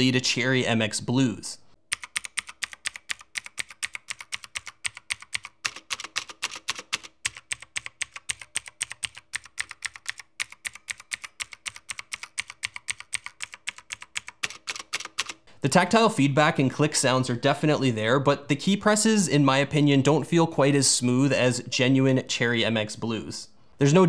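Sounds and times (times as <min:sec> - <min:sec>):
mechanical keyboard key clicks: 0:01.9 - 0:15.4.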